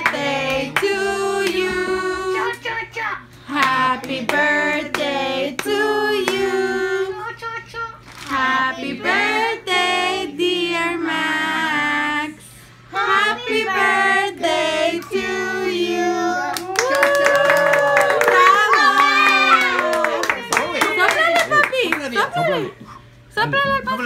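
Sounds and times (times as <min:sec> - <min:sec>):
group singing: 0:00.0 - 0:02.6, 0:03.5 - 0:07.2, 0:08.3 - 0:16.5.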